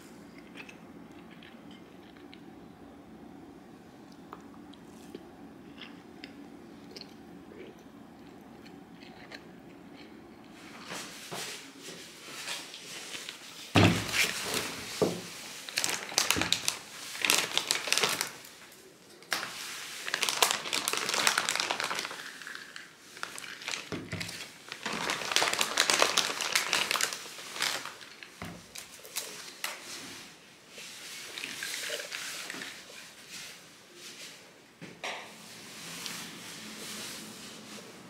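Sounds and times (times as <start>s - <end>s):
plastic bag crinkling: 12.8s - 30.0s, 31.0s - 33.2s.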